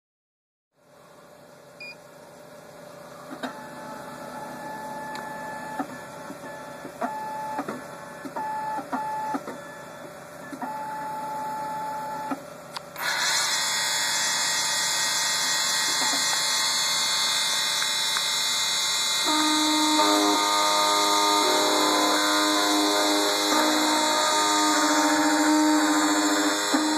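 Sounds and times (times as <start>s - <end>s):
control panel beeps: 1.8s - 2.0s
cutter spindle whirring: 12.2s - 26.9s
low humming tone: 19.2s - 26.9s.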